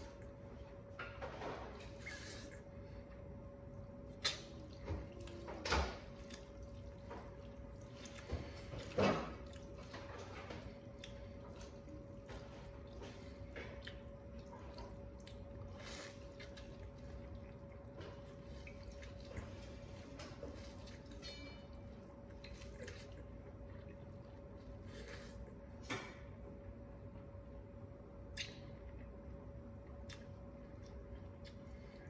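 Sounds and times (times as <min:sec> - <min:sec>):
wet squishing of noodles: 0:00.0 - 0:25.9
eating smacks and clicks: 0:04.1 - 0:11.8, 0:13.1 - 0:19.8, 0:28.3 - 0:29.1, 0:29.9 - 0:32.0.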